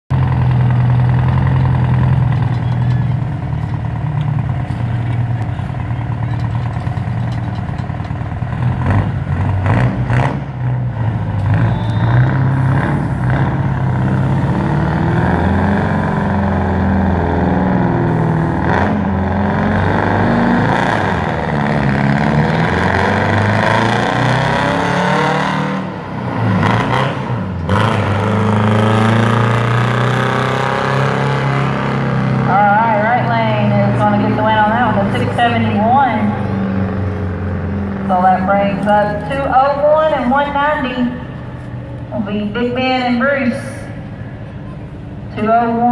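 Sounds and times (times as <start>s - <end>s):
diesel truck engines revving: 0.1s - 45.9s.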